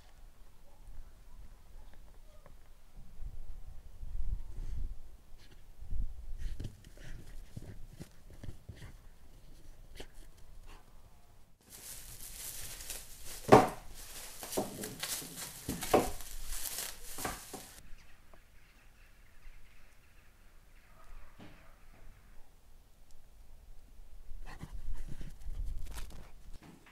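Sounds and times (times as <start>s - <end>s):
cling film crinkling and tearing: 11.6s - 17.8s.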